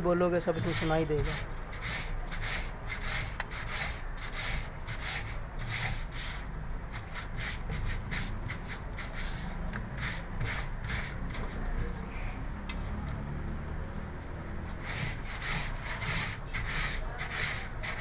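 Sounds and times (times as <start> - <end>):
brush scrubbing wet fabric: 0.3 - 11.4, 14.8 - 18.0.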